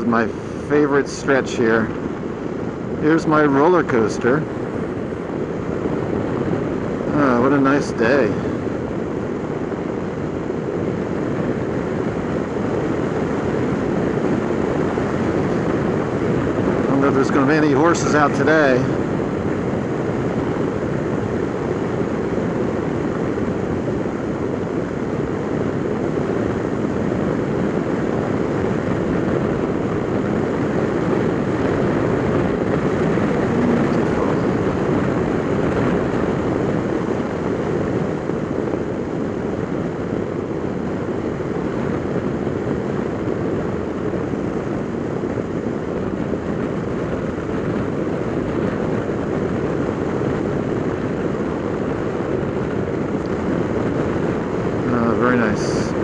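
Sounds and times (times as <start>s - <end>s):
wind noise: 0.0s - 56.0s
scooter engine droning: 31.2s - 36.0s.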